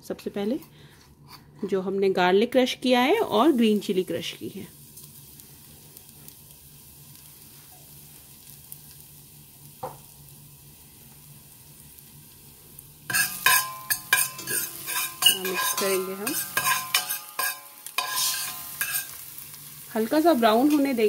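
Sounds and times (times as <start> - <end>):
oil sizzling in pot: 3.0 - 21.0
metal spoon scraping pot: 13.1 - 19.2.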